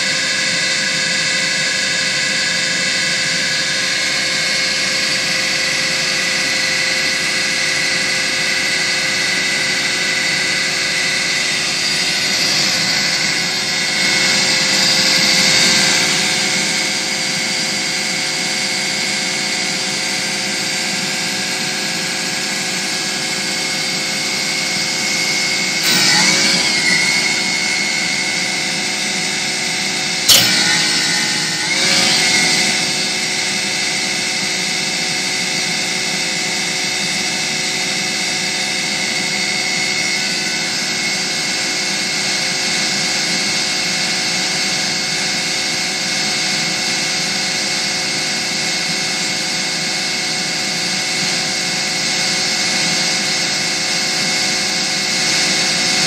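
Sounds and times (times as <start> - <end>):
stump grinder machine whine: 10.9 - 18.5, 22.8 - 34.8
sharp clack: 12.2 - 17.0, 25.8 - 34.0.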